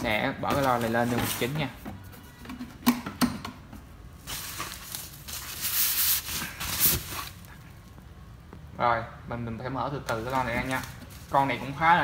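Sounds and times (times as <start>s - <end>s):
plastic bag rustling: 0.4s - 1.8s, 4.2s - 7.7s, 10.1s - 12.0s.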